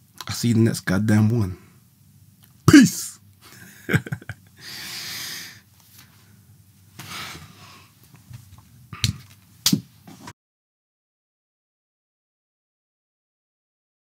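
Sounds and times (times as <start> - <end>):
person exhaling: 4.6 - 5.6.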